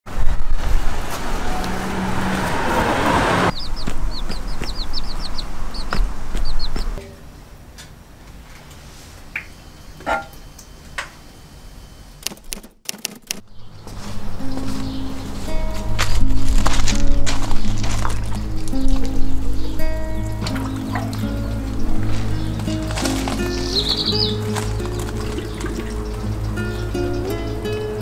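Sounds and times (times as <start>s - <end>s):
loud rushing noise: 0.1s - 7.0s
baby chicks peeping: 3.5s - 7.0s, 13.4s - 28.0s.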